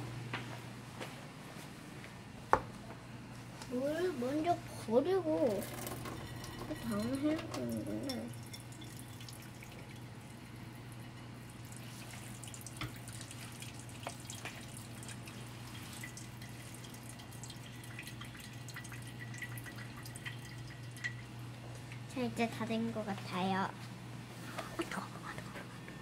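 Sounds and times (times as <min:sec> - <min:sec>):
steady low hum: 0:00.0 - 0:26.0
water trickling into a steel sink: 0:05.4 - 0:21.3.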